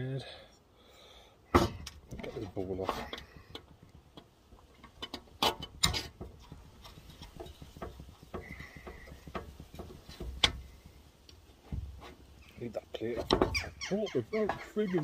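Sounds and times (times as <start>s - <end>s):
metal tools clicking and knocking: 3.0s - 10.8s.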